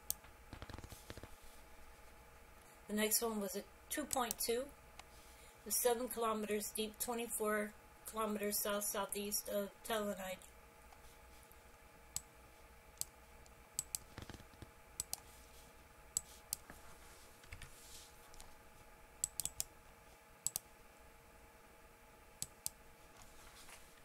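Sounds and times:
faint steady hum: 0.0s - 24.0s
mouse and keyboard clicks: 0.1s - 1.3s, 13.8s - 15.2s.

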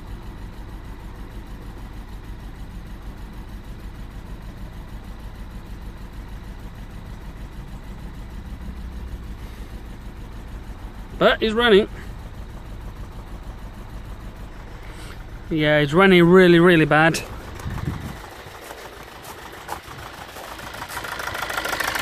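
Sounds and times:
diesel engine idling roughly: 0.0s - 22.0s.

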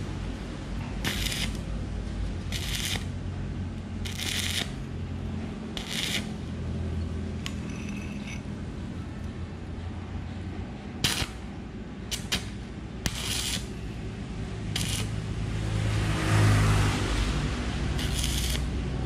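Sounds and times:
steady low hum: 0.0s - 15.8s
arc welder crackling: 0.8s - 1.7s, 2.4s - 3.2s, 3.9s - 4.9s, 5.7s - 6.5s, 11.0s - 11.4s, 12.1s - 13.8s, 14.7s - 15.3s, 17.6s - 19.0s.

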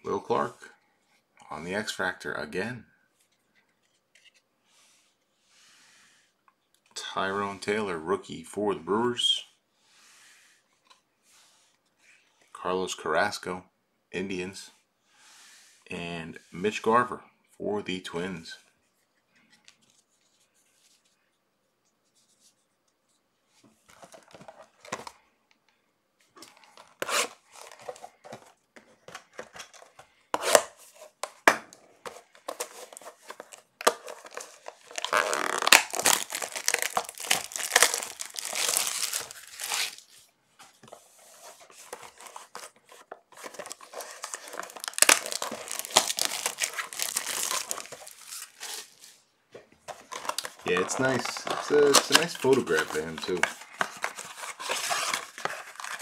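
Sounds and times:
foil wrappers tearing and crinkling: 32.5s - 40.1s, 41.9s - 49.1s, 50.0s - 56.0s.

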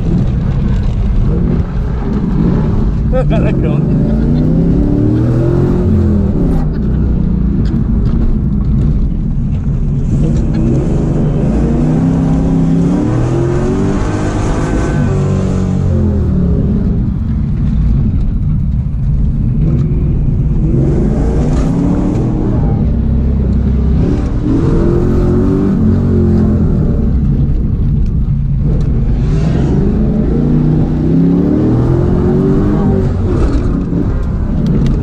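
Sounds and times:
car engine revving from inside cabin: 3.4s - 6.7s, 20.6s - 27.2s, 28.6s - 35.0s.

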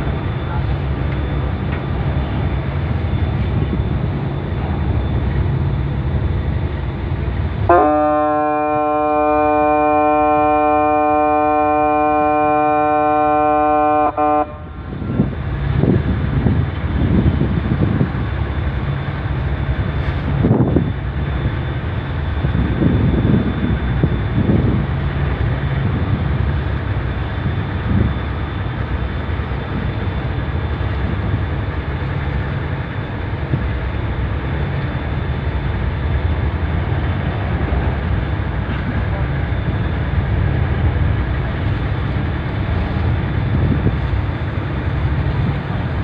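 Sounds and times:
ship's horn blast: 7.6s - 15.0s.

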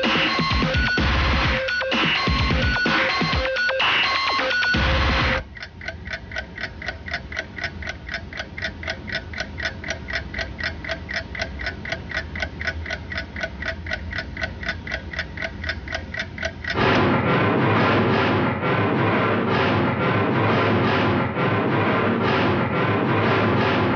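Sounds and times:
music: 0.0s - 5.4s, 16.8s - 23.9s
clock ticking: 0.0s - 17.2s.

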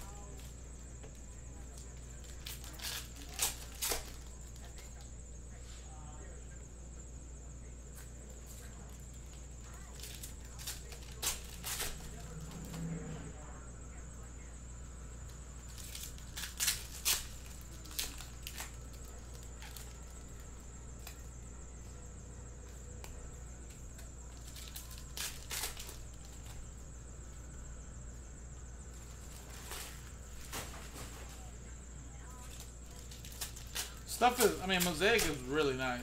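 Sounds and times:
steady low hum: 0.0s - 36.0s
foil packs crinkling and clicking: 1.6s - 5.0s, 8.9s - 12.8s, 15.7s - 21.3s, 23.9s - 26.6s, 32.4s - 36.0s.

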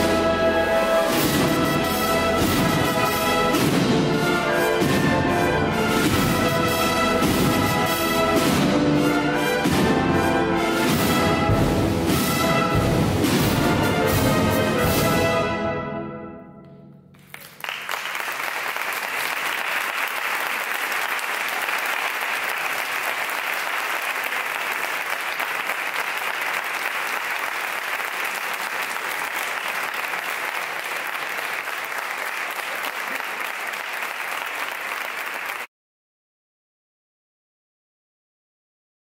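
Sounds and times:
audience applauding: 17.1s - 35.7s.

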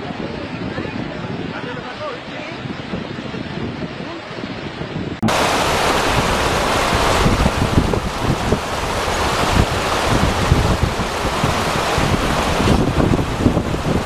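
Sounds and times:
wind buffeting microphone: 0.0s - 14.0s
floodwater rushing: 5.2s - 14.0s.

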